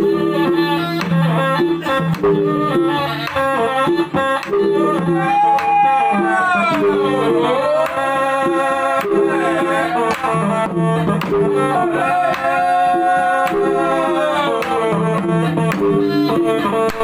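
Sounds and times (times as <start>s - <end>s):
men singing sliding notes: 5.1s - 16.8s
drum strokes: 10.1s - 14.0s.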